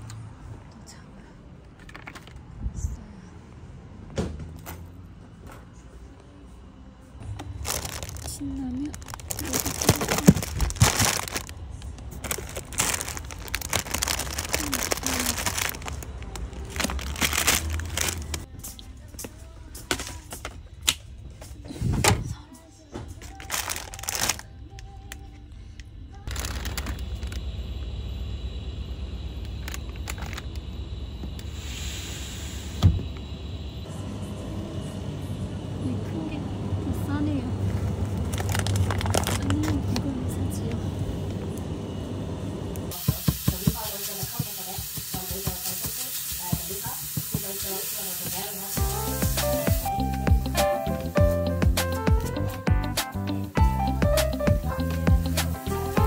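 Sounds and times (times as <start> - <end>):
steady low hum: 6.1 - 43.0
plastic packet crinkling: 7.4 - 18.5, 23.2 - 25.2, 26.2 - 27.4, 29.6 - 30.5, 38.2 - 40.0
faint background music: 13.7 - 27.0
ground beef sizzling in a pan: 42.9 - 49.9
background music: 48.8 - 56.0.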